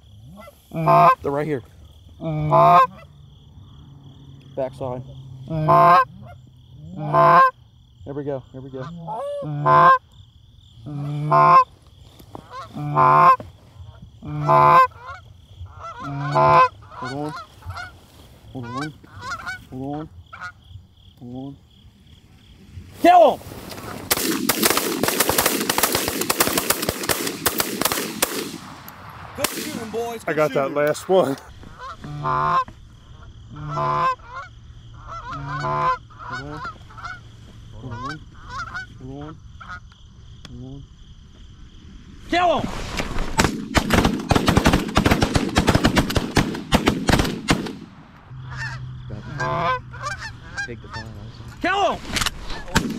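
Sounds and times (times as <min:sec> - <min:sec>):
faint insect trill: 0:00.0 - 0:23.9, 0:29.1 - 0:43.3, 0:48.0 - 0:52.7
geese clucking: 0:00.2 - 0:01.4, 0:02.2 - 0:03.2, 0:05.4 - 0:07.6, 0:08.6 - 0:10.1, 0:10.8 - 0:21.6, 0:29.4 - 0:40.0, 0:48.3 - 0:52.9
canada goose honking: 0:00.3 - 0:01.2, 0:02.2 - 0:03.1, 0:05.4 - 0:07.6, 0:08.7 - 0:10.0, 0:10.9 - 0:11.7, 0:12.4 - 0:13.4, 0:14.2 - 0:18.0, 0:18.6 - 0:20.6, 0:30.3 - 0:39.8, 0:48.4 - 0:51.6.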